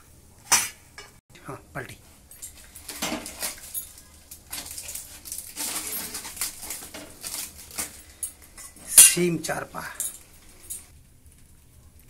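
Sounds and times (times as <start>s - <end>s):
dry leaves crinkling: 2.2s - 10.9s
steel dishes clinking: 2.3s - 10.9s.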